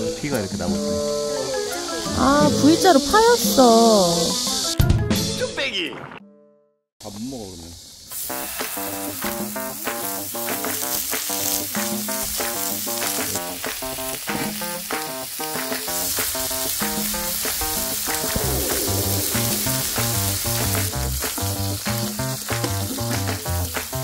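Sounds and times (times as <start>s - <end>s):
pork sizzling on a griddle: 0.0s - 4.8s, 7.0s - 24.0s
background music: 0.0s - 6.7s, 8.3s - 24.0s
bass line: 17.2s - 24.0s.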